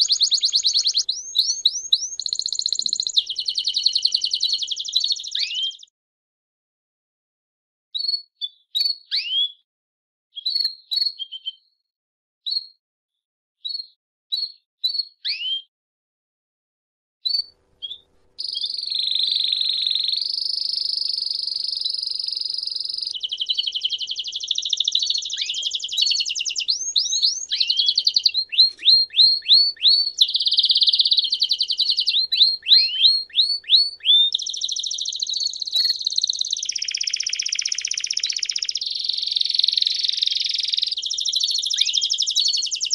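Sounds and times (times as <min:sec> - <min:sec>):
canary singing trills: 0:00.0 - 0:05.9, 0:17.3 - 0:42.9.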